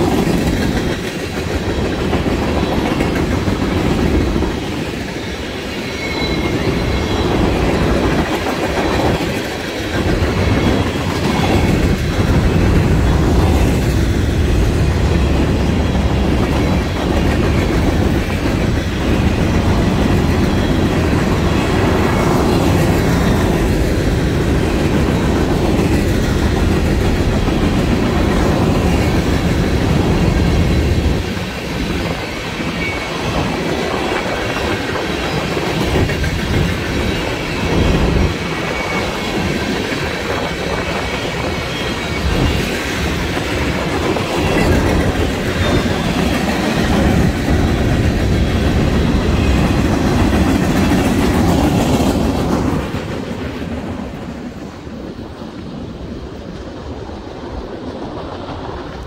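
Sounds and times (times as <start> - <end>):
wheels clacking over rail joints: 0.0 - 54.4
freight train rolling by: 0.0 - 59.0.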